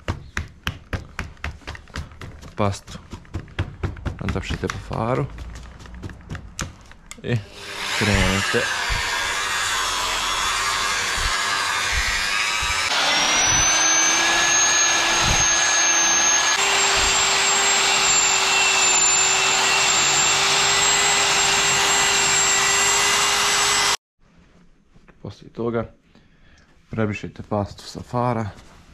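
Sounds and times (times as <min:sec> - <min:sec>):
electric drill motor whine: 0:07.5 - 0:24.0.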